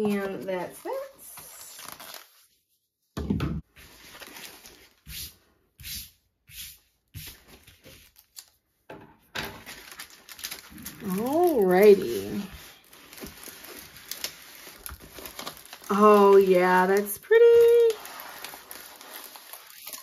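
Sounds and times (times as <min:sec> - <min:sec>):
paper wrapper rustling: 0:00.0 - 0:02.7, 0:03.7 - 0:05.2, 0:09.5 - 0:20.0.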